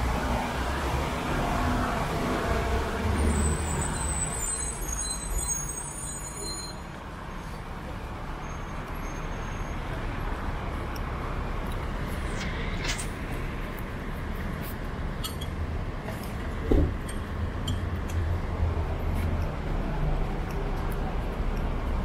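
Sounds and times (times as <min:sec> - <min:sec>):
cars passing on wet road: 0:00.0 - 0:04.9
heavy vehicle rumble: 0:00.0 - 0:22.0
faint high squeaks: 0:03.3 - 0:06.9.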